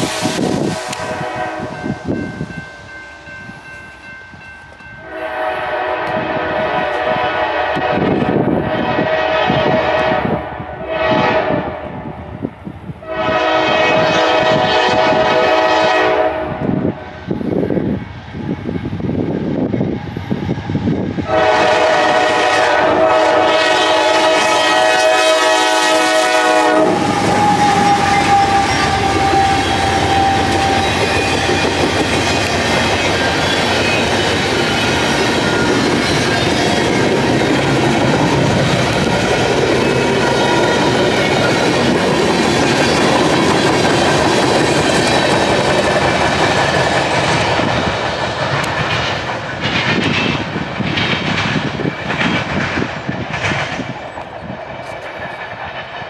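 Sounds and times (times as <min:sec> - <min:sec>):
locomotive horn blast: 0:00.3 - 0:02.1, 0:05.0 - 0:12.0, 0:13.0 - 0:17.0, 0:21.2 - 0:31.8
freight cars rumbling on rails: 0:13.1 - 0:56.0.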